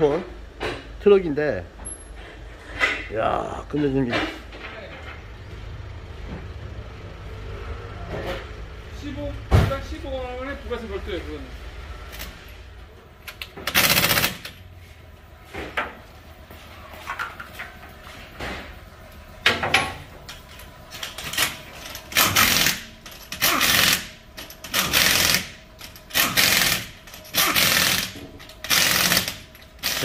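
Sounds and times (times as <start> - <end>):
impact wrench rattling: 13.2 - 14.7, 19.4 - 30.0.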